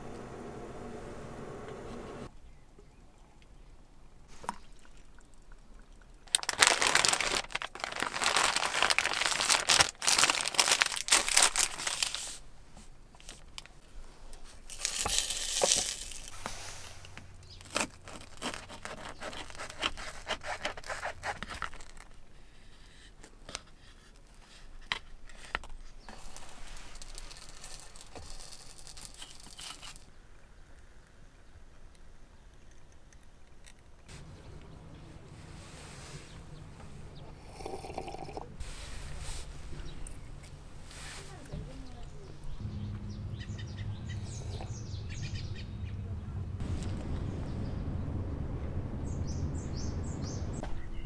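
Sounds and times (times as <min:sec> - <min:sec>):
material crinkling and rustling: 0:06.2 - 0:22.3, 0:23.2 - 0:30.1.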